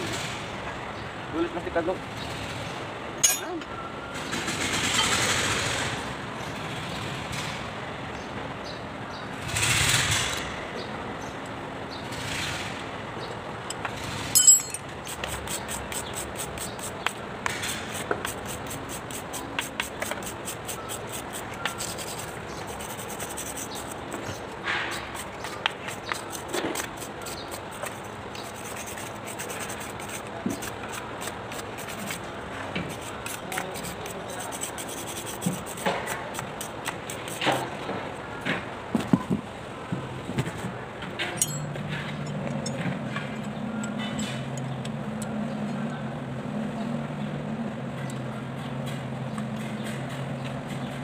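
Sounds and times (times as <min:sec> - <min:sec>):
sharp metallic clank: 0:03.2 - 0:03.7, 0:14.3 - 0:14.9, 0:41.2 - 0:42.8
wire brush scrubbing metal: 0:14.4 - 0:37.7.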